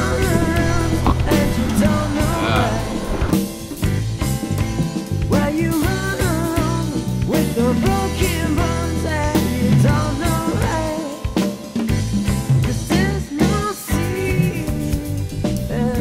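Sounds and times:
person singing: 0.0 - 3.6, 5.3 - 11.5, 12.7 - 16.0
drum beat: 0.0 - 4.8.

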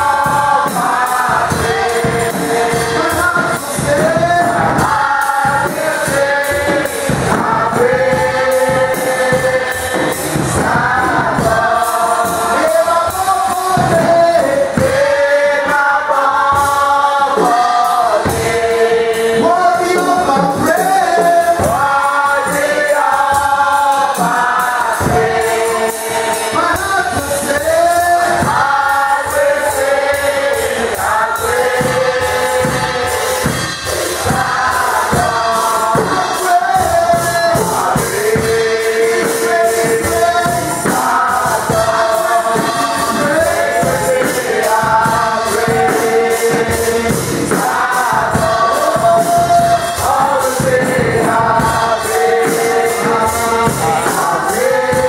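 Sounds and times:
group singing gospel: 0.0 - 55.0
steady drum beat: 0.0 - 55.0.

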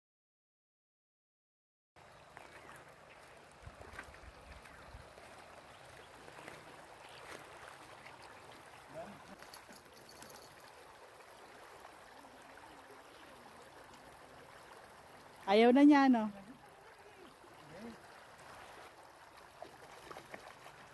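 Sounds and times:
stony river flowing: 2.0 - 20.9.

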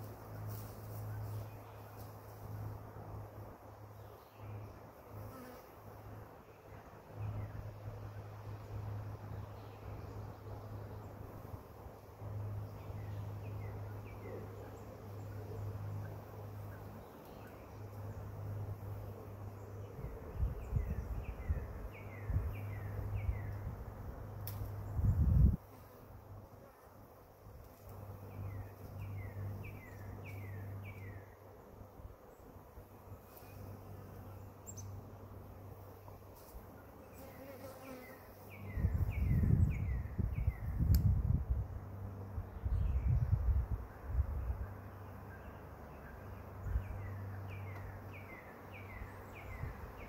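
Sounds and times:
bee swarm buzzing: 36.9 - 38.6.

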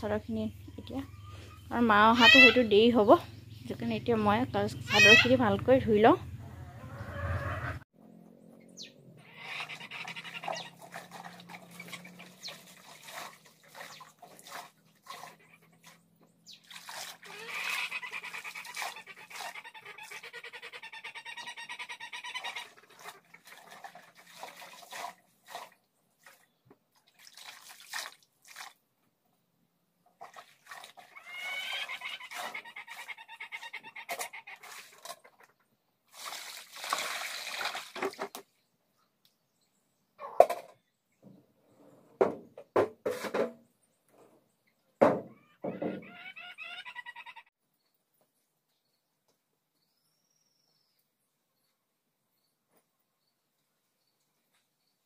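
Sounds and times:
sheets scrubbed in water basin: 10.1 - 20.2, 22.6 - 28.8, 30.2 - 35.5, 36.1 - 38.3
water poured out with rush: 10.3 - 16.0, 16.6 - 17.8, 22.8 - 26.4, 27.0 - 28.8, 30.2 - 31.7, 36.1 - 38.4.

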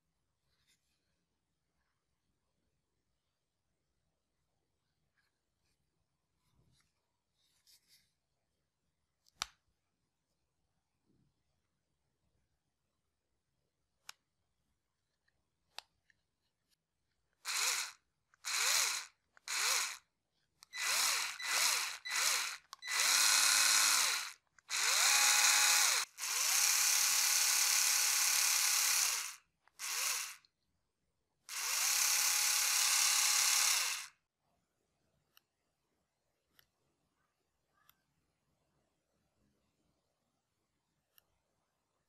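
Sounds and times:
electric screwdriver whining: 17.4 - 20.0, 20.7 - 30.4, 31.5 - 34.1.

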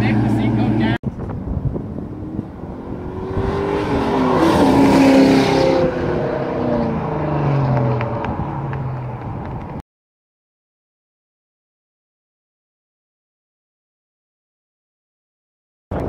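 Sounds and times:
car accelerating hard past: 2.3 - 9.4.

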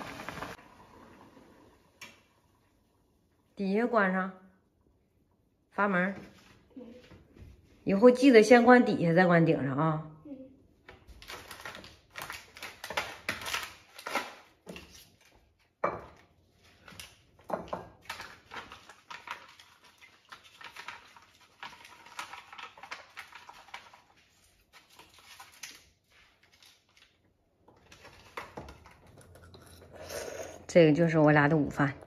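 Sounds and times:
plastic sachets crinkling: 11.1 - 14.4, 18.0 - 28.4.

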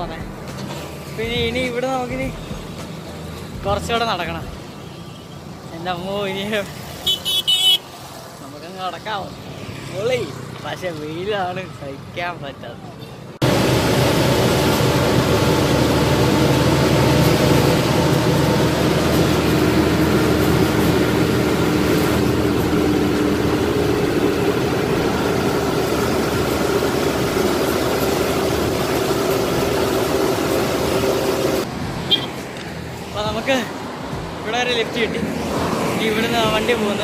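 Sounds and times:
road noise: 0.0 - 37.0
diesel engine drone in cab: 13.4 - 32.2.

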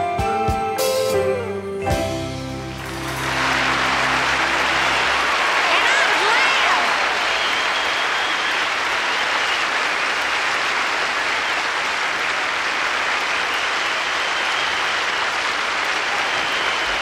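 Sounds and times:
audience applauding: 2.6 - 17.0.

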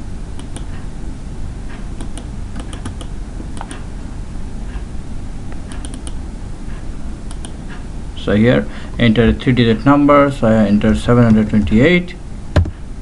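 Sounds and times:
steady low hum: 0.0 - 13.0
mouse and keyboard clicks: 2.0 - 3.8, 5.7 - 6.2.

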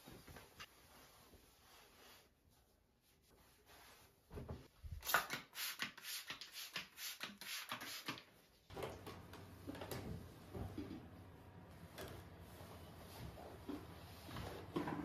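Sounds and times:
cloth rubbing on coffee machine: 0.0 - 4.7, 12.3 - 14.8
towel rustling and brushing: 0.0 - 5.0, 12.3 - 14.8.

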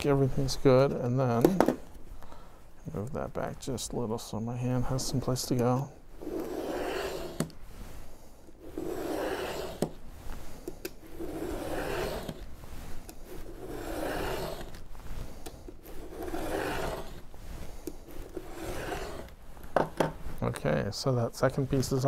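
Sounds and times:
utility knife scraping through board: 4.9 - 20.4.

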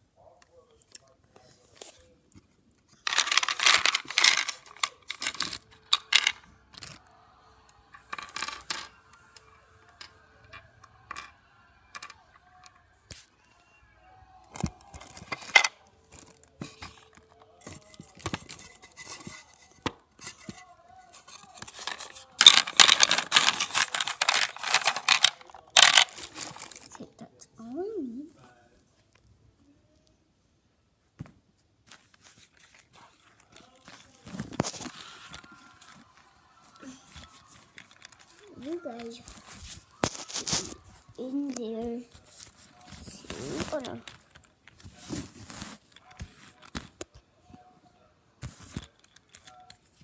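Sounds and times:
toy gem stones clinking in box: 3.1 - 6.9, 21.6 - 26.9.

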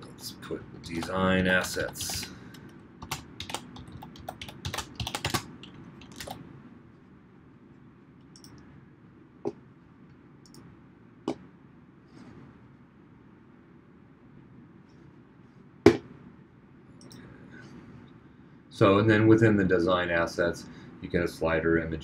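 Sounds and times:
computer keyboard typing: 1.0 - 6.4.

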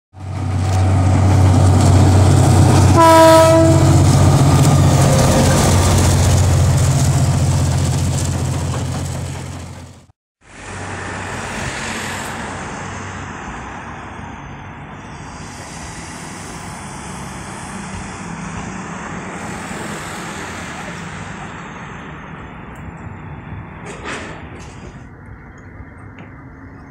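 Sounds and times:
diesel locomotive drone: 0.2 - 26.9
outdoor background noise: 0.2 - 26.9
locomotive horn blast: 2.0 - 6.0.

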